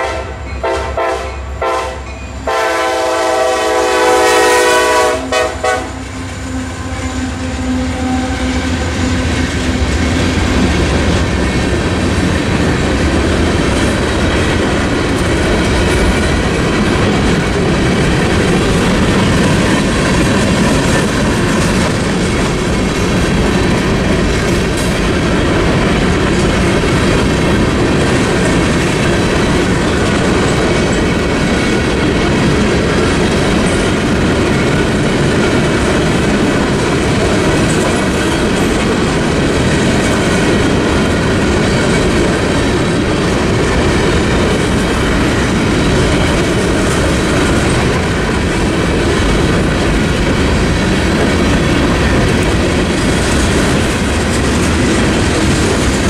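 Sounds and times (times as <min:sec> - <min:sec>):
freight train rumble: 0:00.0 - 0:56.0
steel wheels clacking on rail joints: 0:06.2 - 0:56.0.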